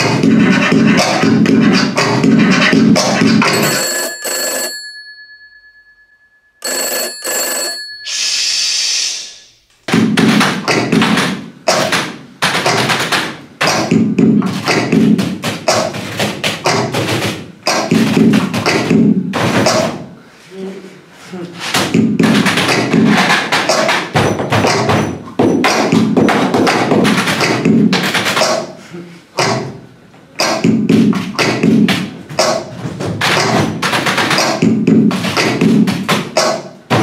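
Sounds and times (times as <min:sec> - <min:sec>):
percussion beat on desk objects: 0:00.0 - 0:04.5, 0:09.9 - 0:20.0, 0:21.7 - 0:28.8, 0:30.4 - 0:37.0
bell ringing: 0:03.4 - 0:08.6
hiss: 0:08.1 - 0:09.5.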